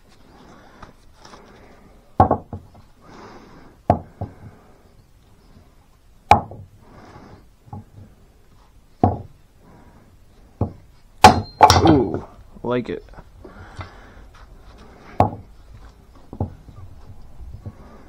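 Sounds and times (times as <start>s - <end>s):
axe chopping firewood: 6.3s - 6.6s, 10.6s - 12.3s
light wooden knocks: 15.1s - 15.5s, 16.1s - 17.9s.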